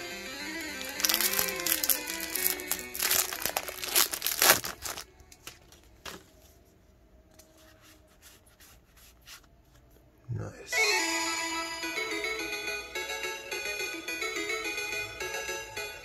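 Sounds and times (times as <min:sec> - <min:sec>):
background music: 0:00.0 - 0:05.4, 0:10.5 - 0:16.0
plastic wrapper crinkling and tearing: 0:00.8 - 0:06.2.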